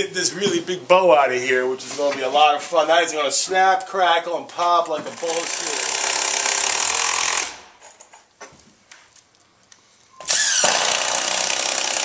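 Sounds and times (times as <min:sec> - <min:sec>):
cordless drill running: 0:05.2 - 0:07.6, 0:10.2 - 0:12.0.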